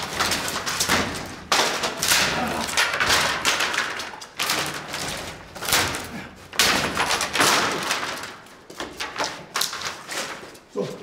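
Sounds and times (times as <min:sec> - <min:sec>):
wooden door thudding and banging: 0:00.0 - 0:09.6.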